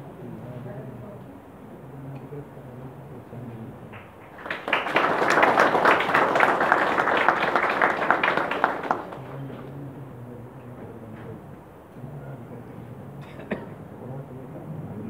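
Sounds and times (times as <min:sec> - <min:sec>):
audience applauding: 0:03.9 - 0:09.4.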